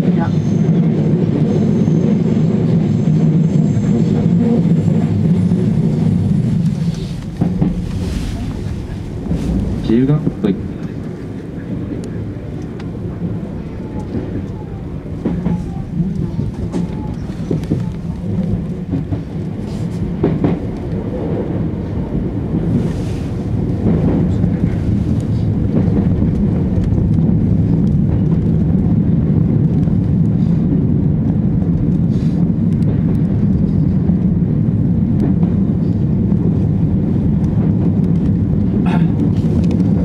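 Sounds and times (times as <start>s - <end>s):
train wheels rumbling on track: 0.0s - 40.0s.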